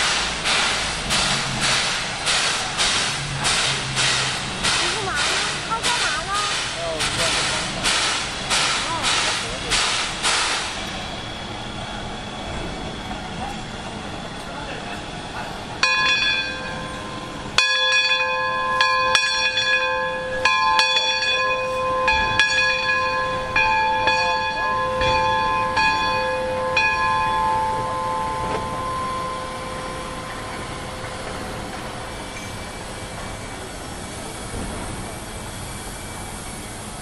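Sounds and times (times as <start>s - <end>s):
bell ringing: 15.8s - 31.2s.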